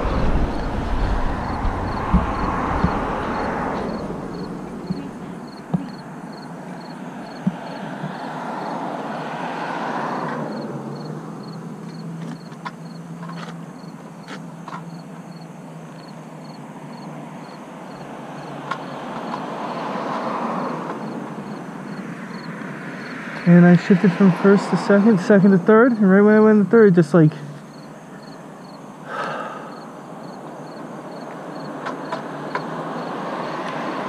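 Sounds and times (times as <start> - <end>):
motorcycle riding: 0.0 - 9.4
wind and road rush: 0.0 - 34.0.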